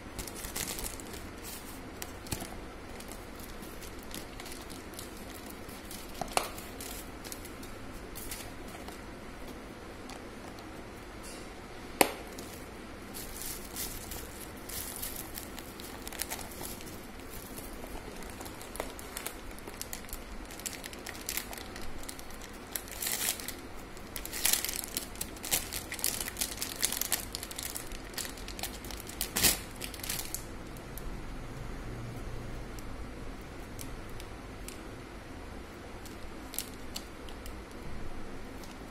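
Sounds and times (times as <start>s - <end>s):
packaging crinkling and rustling: 0.1s - 10.8s, 12.3s - 30.5s, 36.0s - 37.8s.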